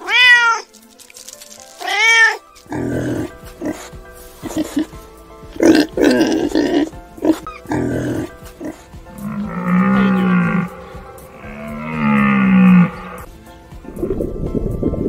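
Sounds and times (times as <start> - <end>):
pig grunting: 2.7 - 13.3
long low animal calls: 9.2 - 13.3.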